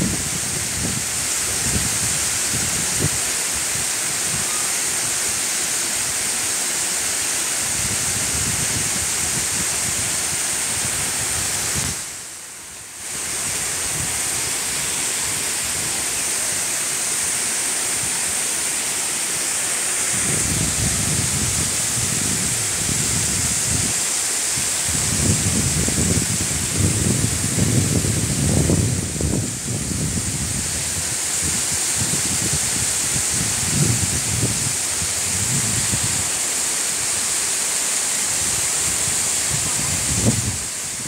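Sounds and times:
wind buffeting microphone: 0.0s - 3.2s, 7.7s - 12.2s, 20.1s - 24.0s, 24.8s - 36.3s, 38.4s - 41.0s
waterfall rushing hiss: 0.0s - 41.0s.

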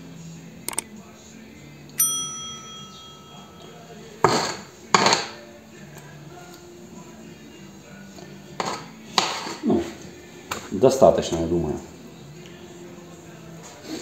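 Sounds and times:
bright chime ding: 2.0s - 3.9s
metallic clanks against pail: 8.6s - 9.6s.

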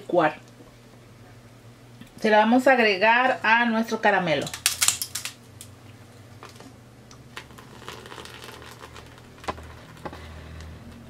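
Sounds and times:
low steady hum: 0.0s - 11.0s
liquid pouring into a dish: 7.4s - 9.6s.

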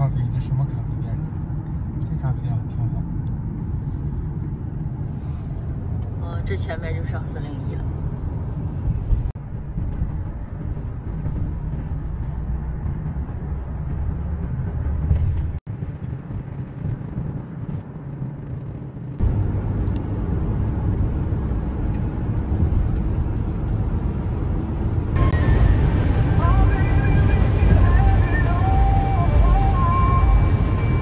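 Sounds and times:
car cabin road noise and engine hum: 0.0s - 31.0s.

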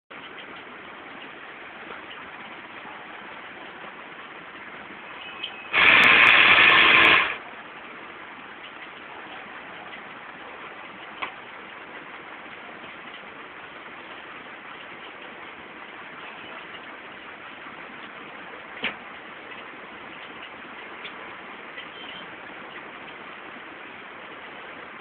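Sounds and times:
steady low hiss: 0.1s - 25.0s
loud air hiss: 5.7s - 7.4s.

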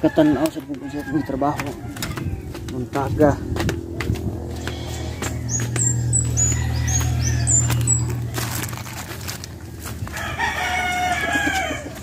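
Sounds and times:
rooster crowing: 0.0s - 2.6s, 4.6s - 9.0s, 10.0s - 12.0s
low hum: 3.3s - 10.1s
small bird chirping: 4.6s - 8.8s.

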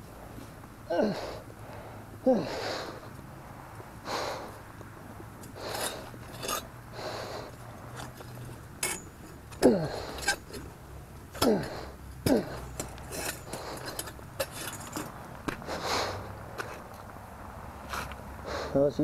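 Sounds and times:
heavy breathing: 0.1s - 4.8s, 5.5s - 8.5s, 9.6s - 10.6s, 11.4s - 16.9s, 18.4s - 18.9s
metal crucible clinking and rattling: 12.6s - 15.2s.

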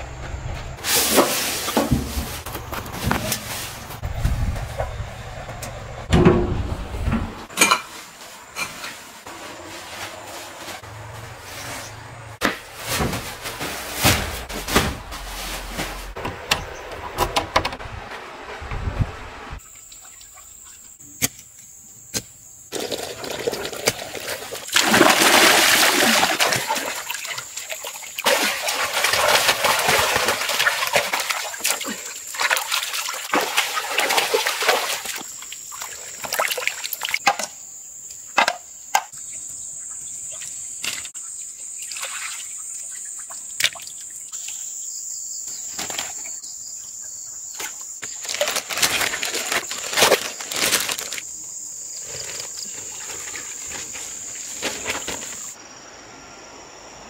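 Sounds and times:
water splashing and sloshing: 0.0s - 21.0s, 22.7s - 37.5s, 39.8s - 44.8s, 47.5s - 55.6s
sharp knocks and rustles: 0.2s - 19.0s.

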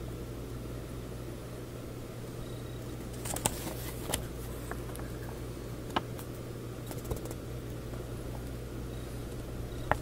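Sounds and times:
steady low hum: 0.0s - 10.0s
paper booklet crinkling: 3.1s - 4.3s.

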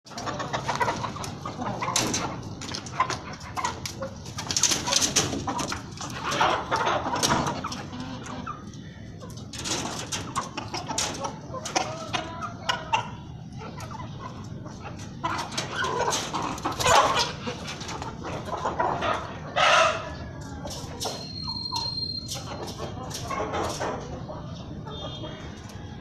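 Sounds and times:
chickens clucking: 0.1s - 26.0s.

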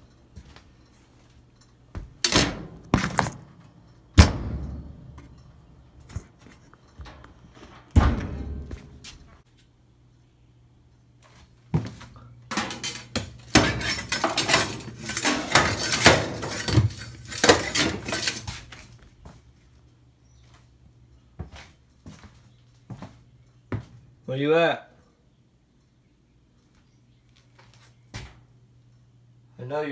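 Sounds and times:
objects banging and clattering: 1.6s - 9.4s, 11.8s - 19.0s
rattling and knocking: 12.5s - 18.6s.

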